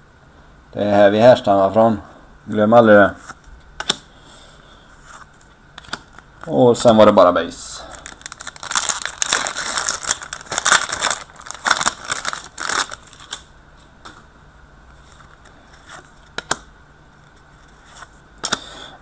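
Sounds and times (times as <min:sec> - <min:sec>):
foil wrapper crinkling and tearing: 0:07.8 - 0:13.5.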